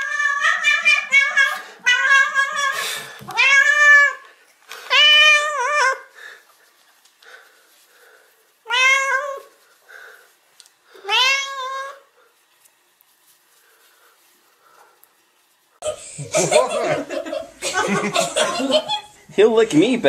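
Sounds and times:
cat meowing loudly: 0:00.0 - 0:04.2, 0:04.9 - 0:06.0, 0:08.7 - 0:09.5, 0:11.0 - 0:12.0.

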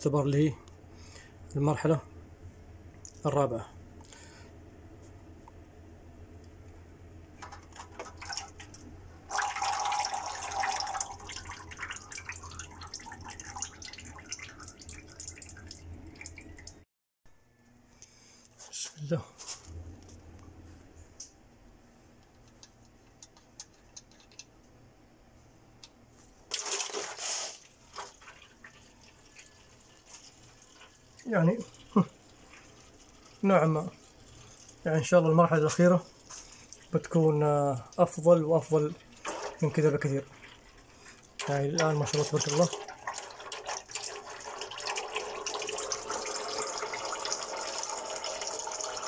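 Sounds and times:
oil pouring in a stream: 0:07.4 - 0:16.8, 0:26.5 - 0:49.0.

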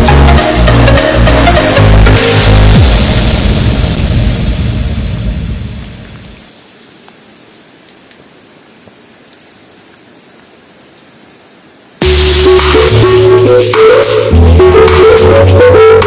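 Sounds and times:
loud electronic music with a beat: 0:00.0 - 0:05.4, 0:12.0 - 0:16.0
background music: 0:00.0 - 0:05.9, 0:12.0 - 0:16.0
light rain hiss: 0:00.0 - 0:14.6
raindrop ticks: 0:05.7 - 0:11.5.

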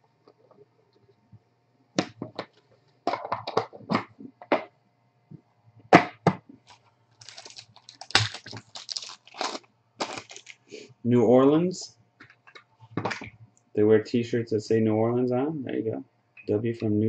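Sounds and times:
plastic holder rustling: 0:06.6 - 0:10.6.

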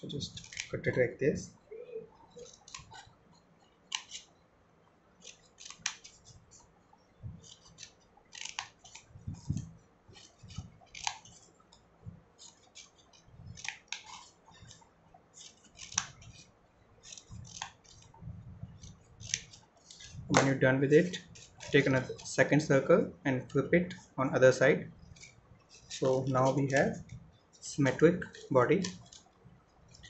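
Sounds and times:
scissors snipping paper: 0:00.1 - 0:00.7, 0:02.4 - 0:03.1, 0:03.9 - 0:04.3, 0:05.2 - 0:06.4, 0:07.4 - 0:11.4, 0:12.4 - 0:14.8, 0:15.4 - 0:22.3, 0:25.0 - 0:27.2, 0:28.2 - 0:29.3.

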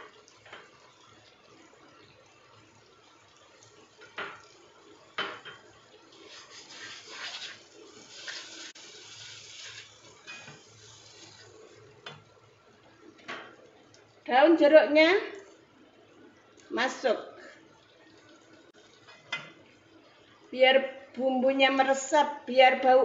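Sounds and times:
paste frying in oil: 0:00.0 - 0:22.5
spatula scraping a wok: 0:06.2 - 0:11.5.

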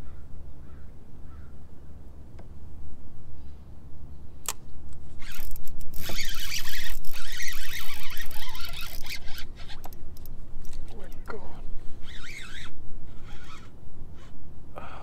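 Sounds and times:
sharp click: 0:04.4 - 0:06.3
fishing reel ratchet clicking: 0:05.2 - 0:11.3.

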